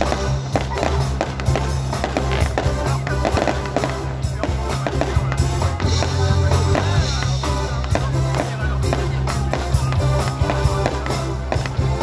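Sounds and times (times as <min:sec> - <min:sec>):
fireworks popping and crackling: 0:00.0 - 0:12.0
music with bass line: 0:00.0 - 0:12.0
person singing: 0:04.5 - 0:12.0.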